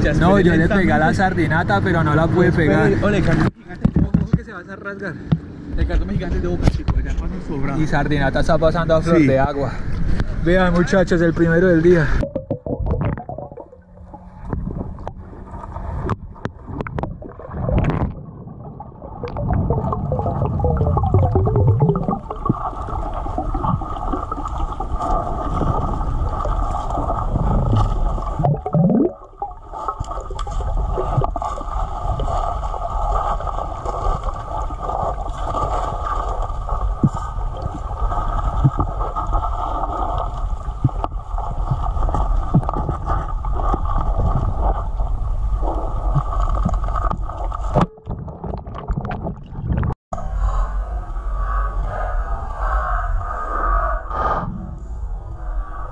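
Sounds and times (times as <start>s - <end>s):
muffled underwater rush: 0.0s - 55.9s
water bubbling: 12.0s - 50.0s.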